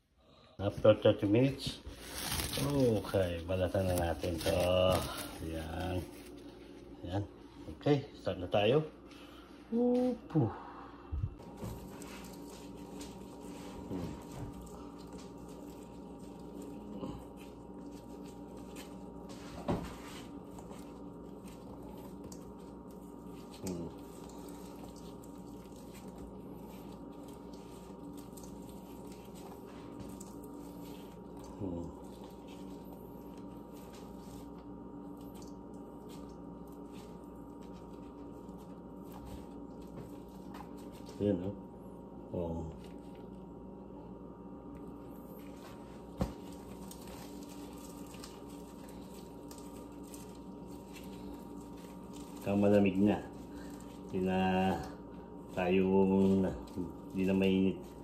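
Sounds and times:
low electrical hum: 0.0s - 58.0s
squishy crackles of peeling skin: 1.9s - 6.8s, 11.7s - 19.4s, 20.2s - 41.2s, 44.8s - 58.0s
wet peeling sounds: 20.2s - 41.2s.

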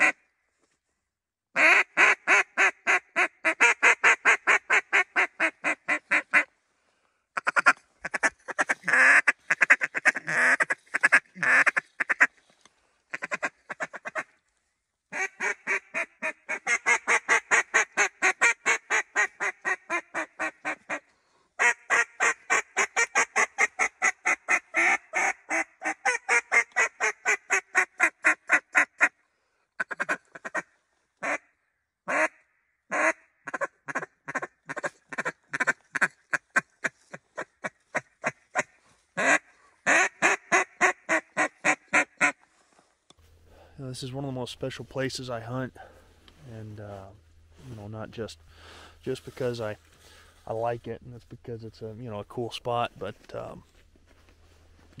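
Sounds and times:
duck quacking: 1.6s - 6.5s, 7.4s - 12.4s, 13.1s - 14.4s, 15.1s - 29.2s, 29.8s - 31.4s, 32.1s - 42.4s.

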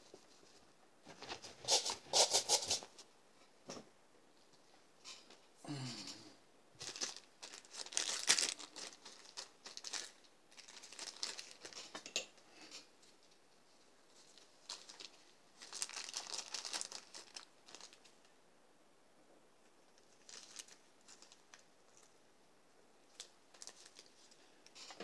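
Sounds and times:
packaging crinkling and tearing: 6.8s - 12.0s, 14.3s - 18.2s, 20.0s - 22.2s, 23.1s - 24.8s.

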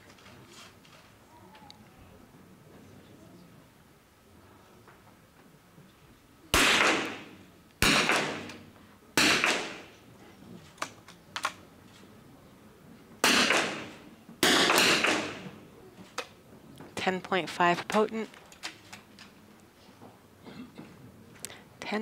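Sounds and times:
rifle shots echoing indoors: 6.6s - 10.0s, 13.2s - 15.6s.

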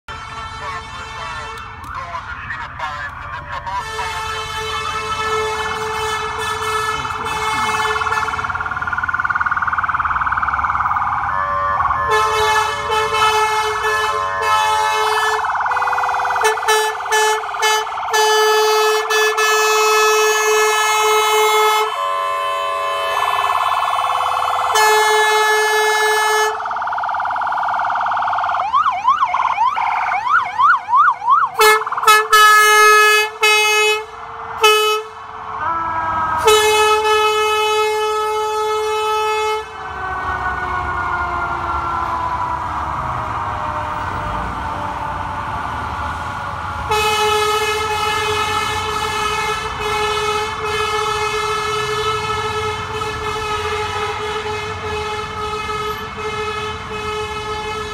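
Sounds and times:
emergency sirens: 0.0s - 57.9s
air horn blasts: 0.1s - 1.9s, 3.7s - 8.6s, 11.3s - 23.6s, 24.6s - 26.7s, 31.6s - 39.8s, 46.9s - 57.9s.

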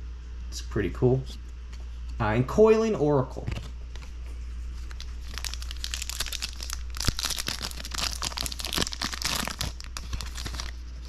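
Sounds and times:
foil wrapper crinkling and tearing: 4.9s - 11.0s.

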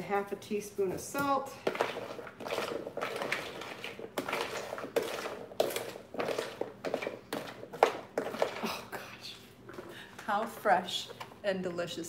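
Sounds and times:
spoon scraping plastic bowl: 1.6s - 8.9s.

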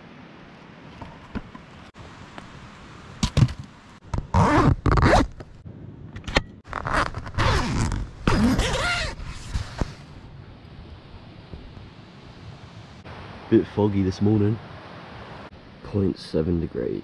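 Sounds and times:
tent zipper being pulled: 4.3s - 5.4s, 6.7s - 10.0s.

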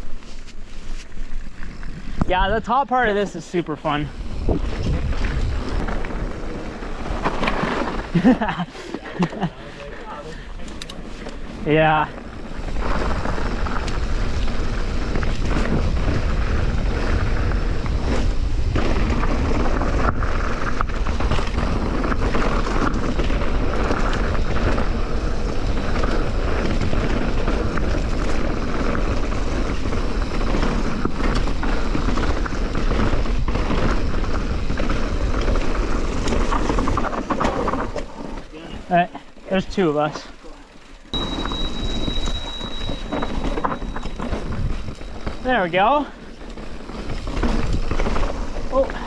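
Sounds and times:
bike rattling over bumps: 0.0s - 49.0s
bike tyres rolling on dirt: 0.0s - 49.0s
wind over microphone: 3.9s - 7.4s, 41.2s - 45.5s.

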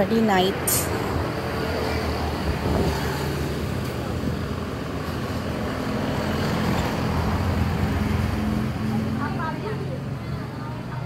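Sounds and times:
road noise: 0.0s - 11.0s
scooters and cars passing: 0.0s - 11.0s.

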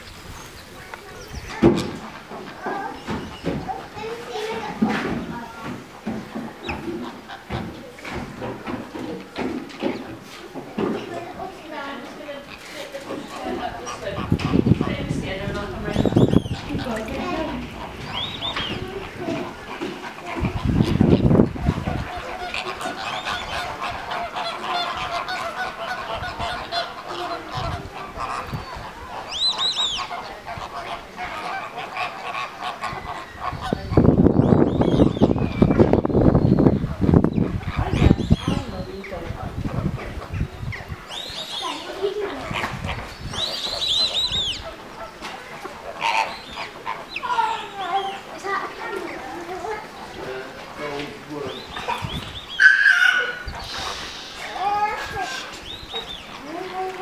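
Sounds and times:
flock of flamingos honking: 0.6s - 9.0s, 9.8s - 57.0s
high arching bird notes: 11.0s - 39.1s, 40.1s - 57.0s.

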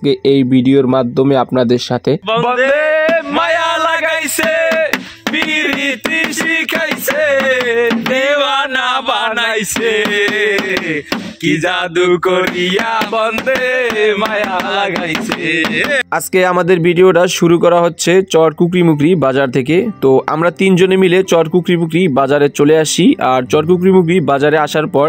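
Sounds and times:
music: 2.2s - 25.0s
man singing long notes: 2.3s - 16.1s.

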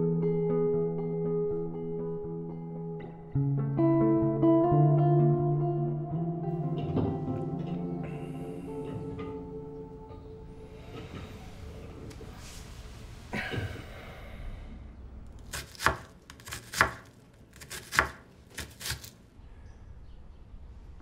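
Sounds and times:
knife chopping on wooden board: 15.4s - 19.2s.

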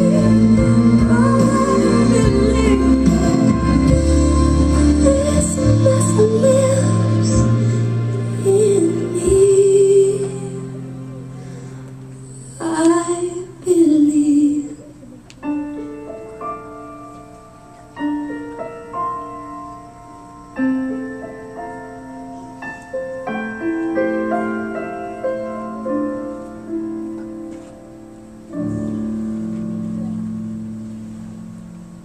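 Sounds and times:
slow solo piano: 14.5s - 32.0s.

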